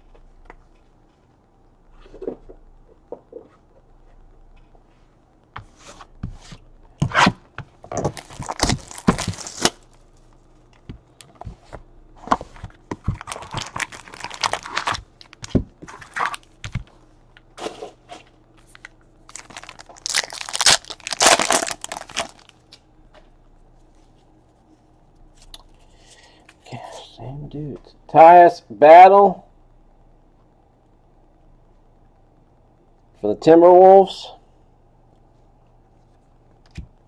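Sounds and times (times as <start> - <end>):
packaging tearing and crinkling: 8.0 - 10.0, 13.0 - 16.6, 18.7 - 22.6
foil pack tearing: 8.1 - 9.9, 13.2 - 16.5, 19.3 - 22.6.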